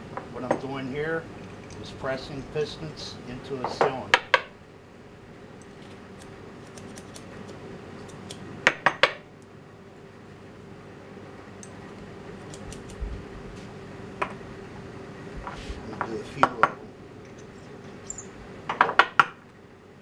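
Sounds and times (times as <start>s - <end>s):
workshop hum: 0.0s - 20.0s.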